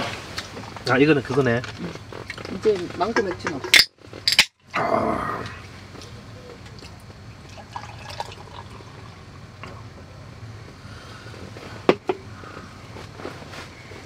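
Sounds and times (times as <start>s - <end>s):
beer fizzing: 6.5s - 10.3s
beer pouring into glass: 7.4s - 9.8s.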